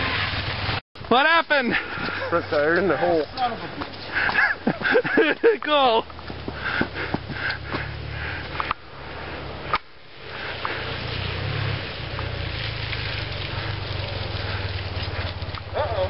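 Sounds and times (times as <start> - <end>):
motorcycle engine idling: 12.2 - 16.0.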